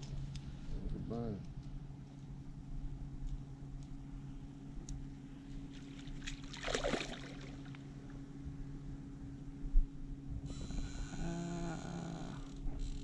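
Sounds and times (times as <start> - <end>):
steady low hum: 0.0 - 13.0
fish thrashing and splashing: 5.9 - 7.7.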